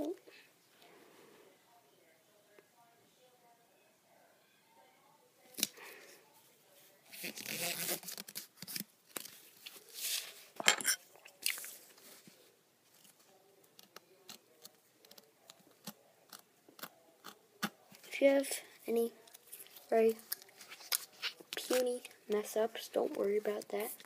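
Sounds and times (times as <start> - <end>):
sticky tape being peeled: 7.2 - 9.3.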